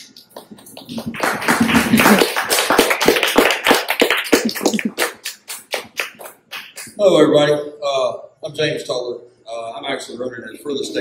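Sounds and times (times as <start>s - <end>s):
audience applauding: 0.2s - 7.0s.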